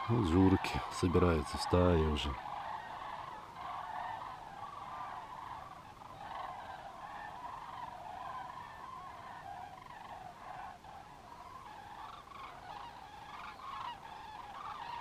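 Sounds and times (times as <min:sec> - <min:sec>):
flock of cranes calling: 0:00.0 - 0:15.0.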